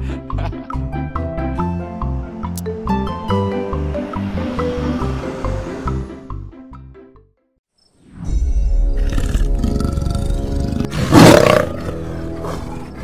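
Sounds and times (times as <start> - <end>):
dramatic soundtrack music: 0.1 - 7.3, 8.3 - 13.0
big cat roar: 9.0 - 13.0.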